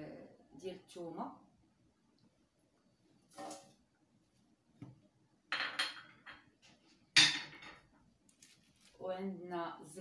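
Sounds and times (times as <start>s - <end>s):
bowls and pot clinking on counter: 5.5s - 6.5s, 7.2s - 7.9s.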